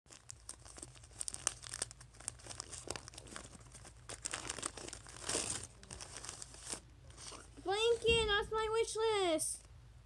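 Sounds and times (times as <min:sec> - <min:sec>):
wrapping paper crinkling and tearing: 0:00.1 - 0:08.0.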